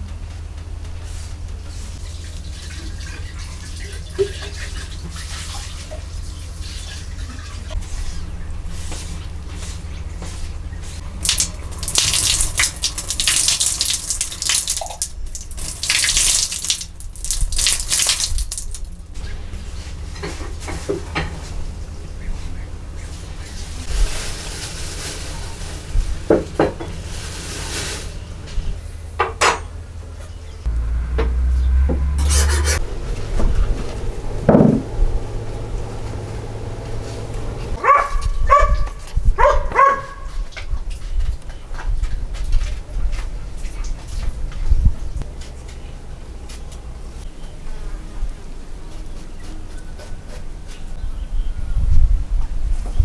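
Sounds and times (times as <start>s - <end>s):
water splashing onto wooden board: 11.1s - 19.1s
dog barking: 37.8s - 40.4s.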